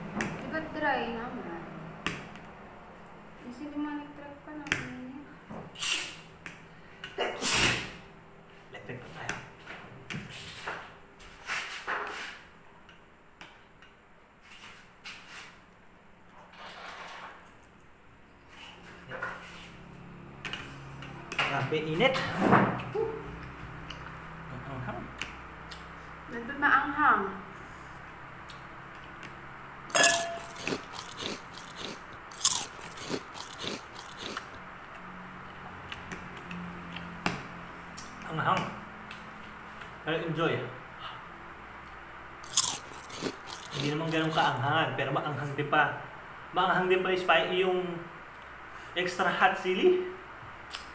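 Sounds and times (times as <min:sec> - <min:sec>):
fork scraping a plate: 0:29.9 - 0:34.5
chewing: 0:30.0 - 0:34.6, 0:42.4 - 0:44.4
noodles being slurped: 0:30.0 - 0:34.6, 0:42.4 - 0:44.4.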